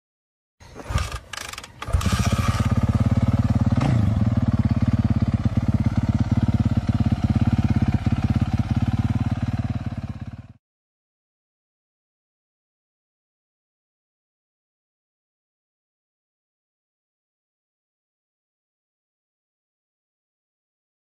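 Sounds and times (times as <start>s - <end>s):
motorcycle starter clicks: 0.6s - 2.8s
motorcycle engine running: 0.8s - 10.6s.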